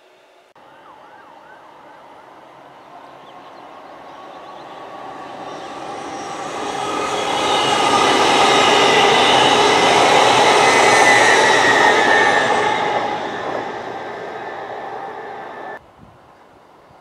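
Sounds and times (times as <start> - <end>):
train passing at speed: 1.6 - 15.8
rail rumble: 2.0 - 15.8.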